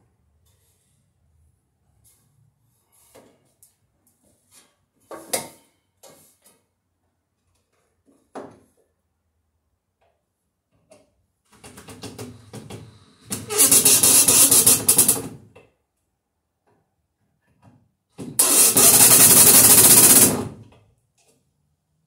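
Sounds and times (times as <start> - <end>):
drill driving screw into wood: 12.3 - 15.4, 18.3 - 20.6.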